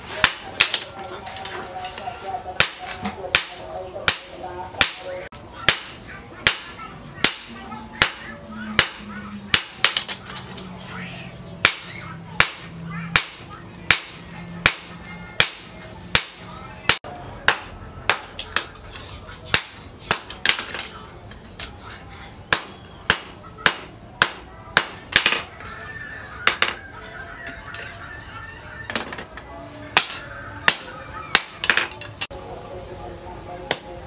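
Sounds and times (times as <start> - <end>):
hammer striking hot steel on anvil: 0.2 - 0.9, 2.6 - 10.1, 11.6 - 18.7, 19.5 - 20.8, 22.5 - 25.4, 30.0 - 31.9, 33.7 - 34.0.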